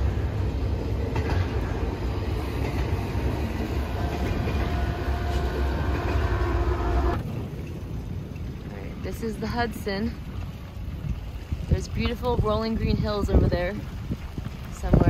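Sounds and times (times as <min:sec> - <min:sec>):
freight train rumbling past: 0:00.0 - 0:10.2.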